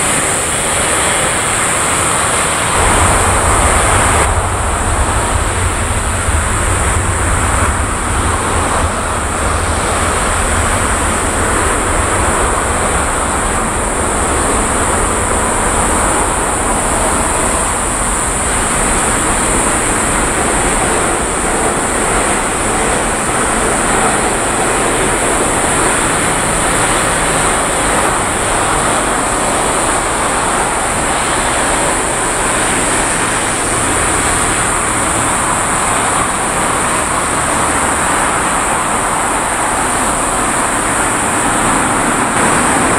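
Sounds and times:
high hiss: 0.0s - 42.9s
jet engines rushing and whining: 0.0s - 42.9s
deep rumble: 2.6s - 38.0s.

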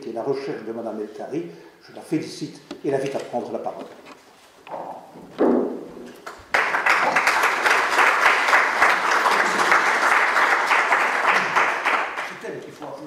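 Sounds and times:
audience applauding: 6.2s - 12.5s.

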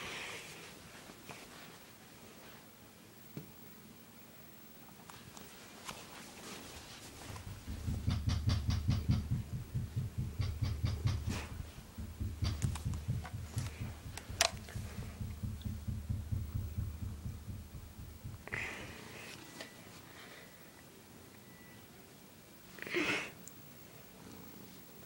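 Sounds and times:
handling clicks and rustles: 5.1s - 18.4s.

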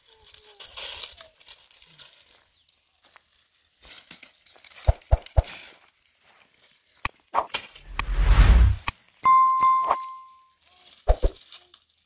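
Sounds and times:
twigs rustling and snapping: 0.1s - 7.9s, 10.7s - 12.0s.

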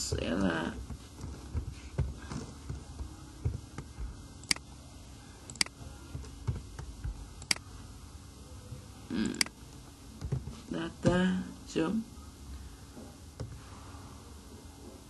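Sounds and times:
computer mouse clicking: 4.4s - 4.6s, 5.5s - 5.7s, 7.4s - 7.7s.

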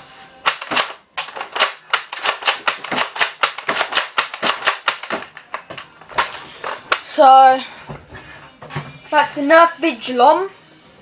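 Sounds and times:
sharp plastic clicks: 0.4s - 7.1s.

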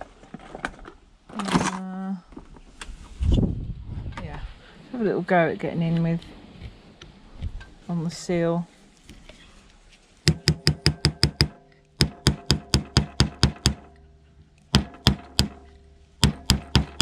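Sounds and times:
screwdriver knocking plastic casing: 10.3s - 13.9s, 16.2s - 17.0s.

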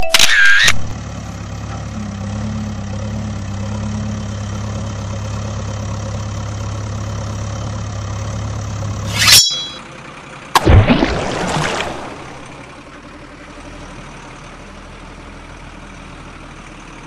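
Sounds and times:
diesel engine idling: 0.9s - 9.1s, 9.8s - 10.6s, 11.9s - 17.0s
brief high-pitched burst: 9.1s - 9.8s.

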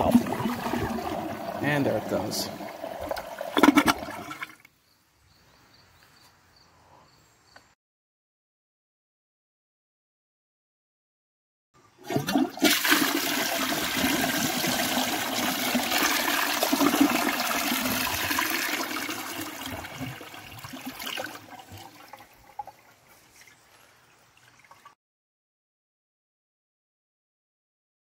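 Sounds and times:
toilet flushing: 0.0s - 4.7s, 12.0s - 23.0s.

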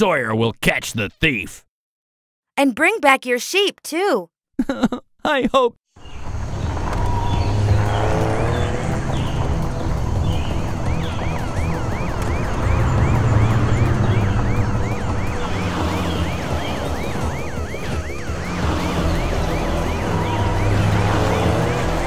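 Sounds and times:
vehicle engine rumble: 6.0s - 22.0s
cartoon police siren: 10.1s - 22.0s.

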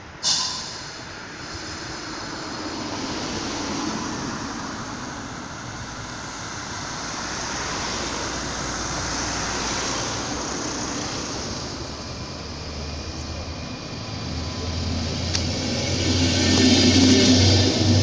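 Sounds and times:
train wheels rumbling and hissing: 0.0s - 18.0s.

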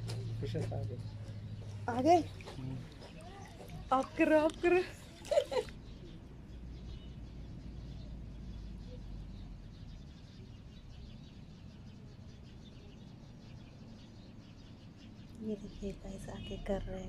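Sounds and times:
birds chirping: 0.0s - 17.0s.

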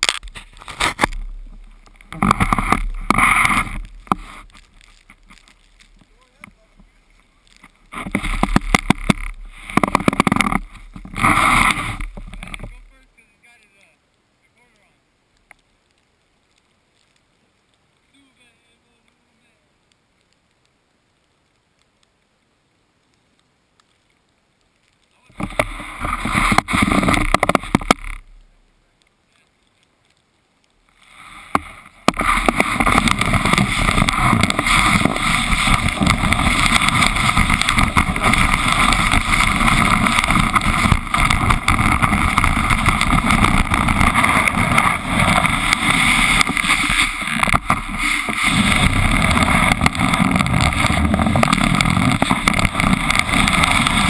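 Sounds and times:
snowboard sliding over snow: 0.0s - 13.5s, 25.3s - 28.4s, 30.9s - 54.0s
wind buffeting microphone: 31.6s - 54.0s.

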